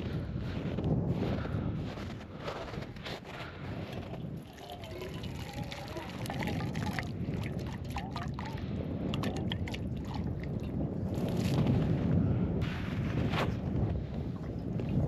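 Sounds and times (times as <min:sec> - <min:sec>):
wind rumbling on microphone: 0:00.0 - 0:15.0
liquid pouring into metal pot: 0:04.4 - 0:10.7.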